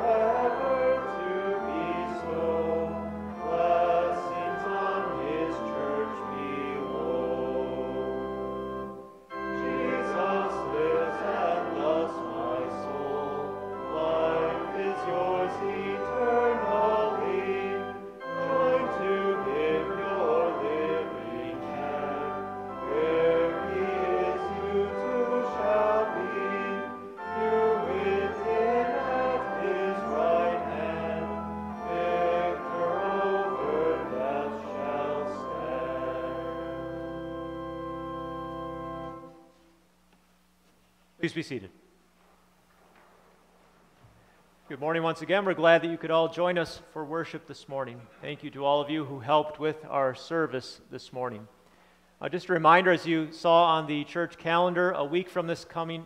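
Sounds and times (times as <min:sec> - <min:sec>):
congregation singing a hymn: 0:00.0 - 0:39.5
instrumental accompaniment: 0:00.0 - 0:39.8.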